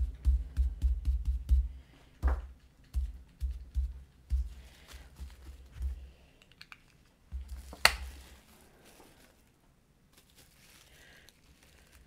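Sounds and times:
dull bump on tabletop: 2.2 - 4.5
plastic rustling: 4.4 - 6.0, 6.6 - 12.0.

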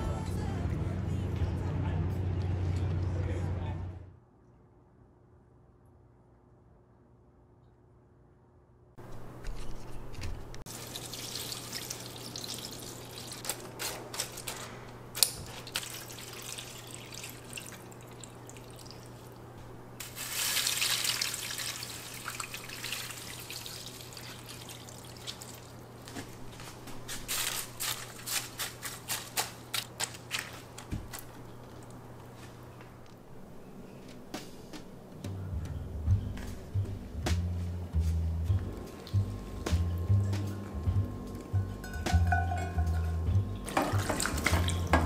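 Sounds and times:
water pouring into metal tray: 10.7 - 13.6, 15.5 - 19.4, 20.0 - 25.8, 43.7 - 45.0.

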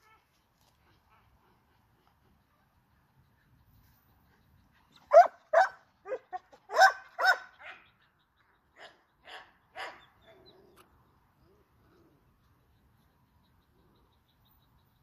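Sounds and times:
puppy barking: 5.1 - 7.8, 8.8 - 10.1.

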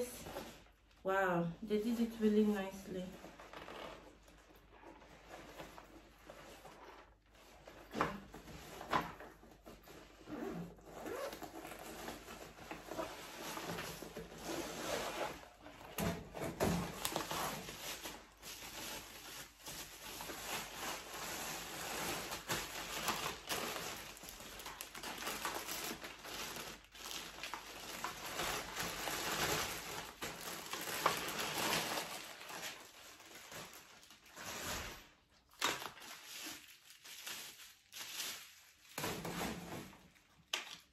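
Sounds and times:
plastic wrapping rustling: 0.0 - 1.2, 1.8 - 40.9
plastic tearing: 3.1 - 40.9
bag being unzipped: 10.2 - 13.2.

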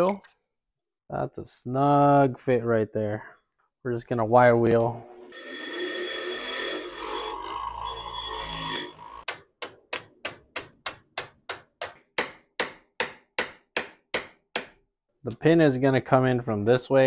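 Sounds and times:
bench grinder wire wheel running: 5.4 - 9.3.

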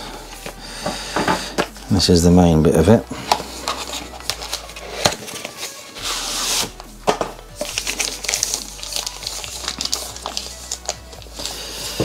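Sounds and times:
background music: 0.0 - 12.0
plastic bag rustling: 7.6 - 12.0.

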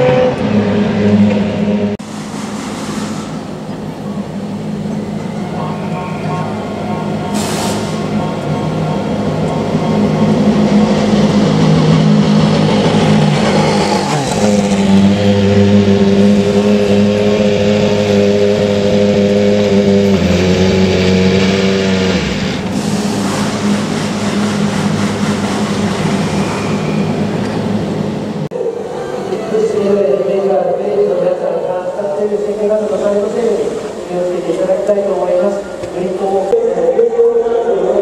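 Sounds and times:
racing car engines running: 0.0 - 28.5.

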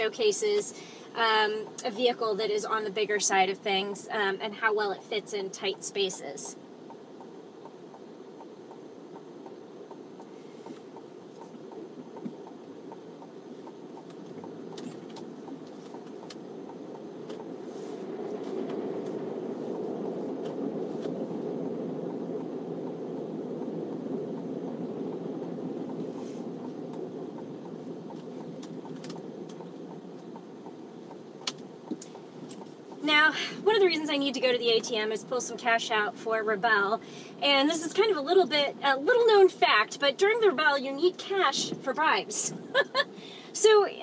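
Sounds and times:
engine and road rumble: 0.0 - 44.0
turn signal ticking: 5.2 - 36.0
sharp clicks: 26.9 - 32.7.

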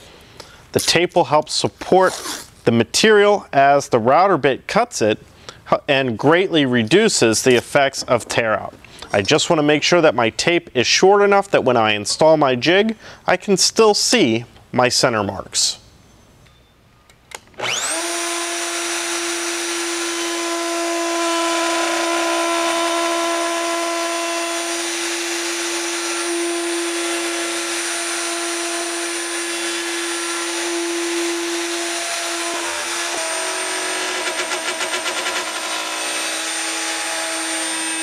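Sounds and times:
plunge router cutting wood: 17.6 - 38.0.

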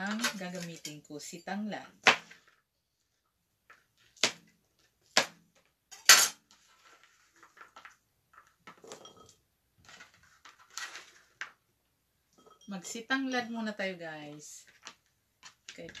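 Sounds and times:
rustling: 6.4 - 11.6.

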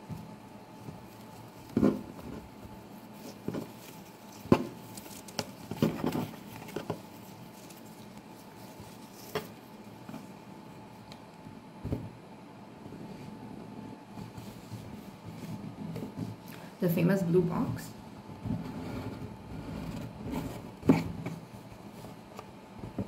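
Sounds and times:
ribbon rustling and sliding: 0.0 - 11.2.

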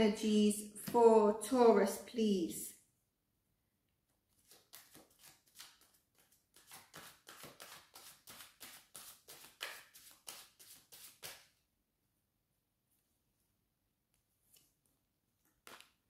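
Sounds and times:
cards being shuffled: 4.3 - 11.5, 15.4 - 16.0.

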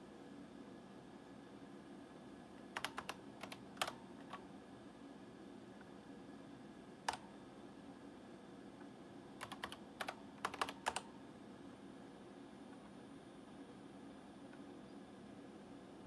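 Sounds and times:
faint steady hum: 0.0 - 16.0
keyboard key clicks: 9.4 - 11.0.

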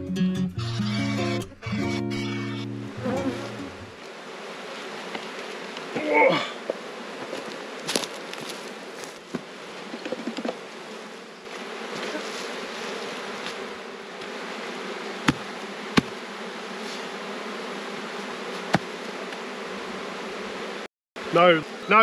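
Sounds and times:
bees buzzing: 0.6 - 22.0
sharp knocks of hive parts: 15.2 - 16.2, 18.7 - 19.4.

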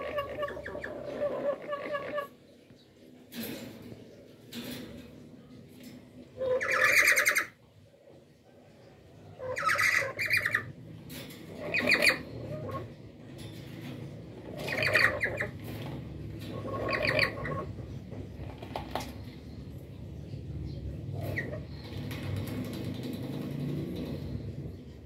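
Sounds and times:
parrots squawking harshly: 0.0 - 2.4, 6.4 - 7.6, 9.4 - 10.8, 11.5 - 13.0, 14.5 - 15.6, 16.5 - 17.7.

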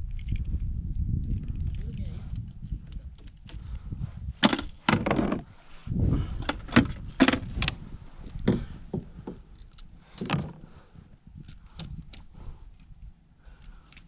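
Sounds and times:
fishing gear clattering: 3.0 - 5.5, 6.4 - 8.5.

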